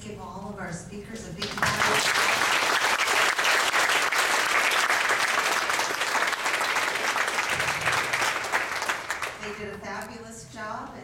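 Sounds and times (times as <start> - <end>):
crowd applauding: 1.4 - 9.6.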